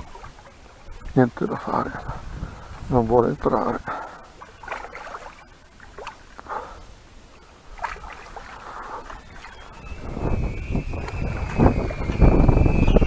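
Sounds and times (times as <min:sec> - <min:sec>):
fish splashing in water: 0:00.0 - 0:01.2, 0:04.0 - 0:06.8, 0:07.6 - 0:11.6.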